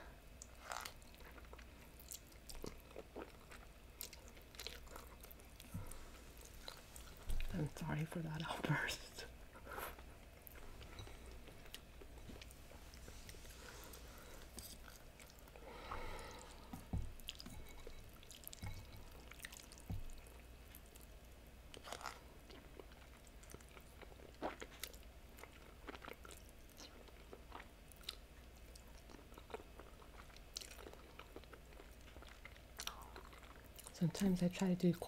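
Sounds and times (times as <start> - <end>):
slurping and chewing noodles: 0.4 - 5.8, 21.8 - 33.9.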